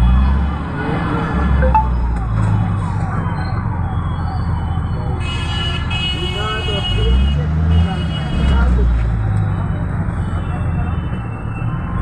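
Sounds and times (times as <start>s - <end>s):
falling electronic tone: 1.6s - 2.4s.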